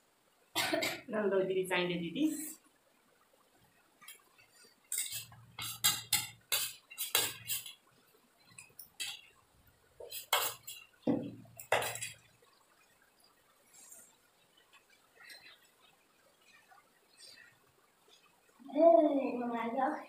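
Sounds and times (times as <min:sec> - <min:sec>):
cutlery clinking on plates: 0:04.9 - 0:07.7, 0:10.1 - 0:10.9, 0:11.6 - 0:12.2.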